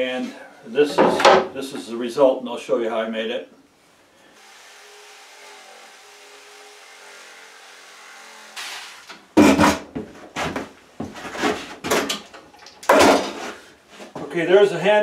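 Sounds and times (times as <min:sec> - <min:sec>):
electric jigsaw cutting wood: 0:04.4 - 0:09.2
loud knocks and clatter: 0:09.4 - 0:13.5.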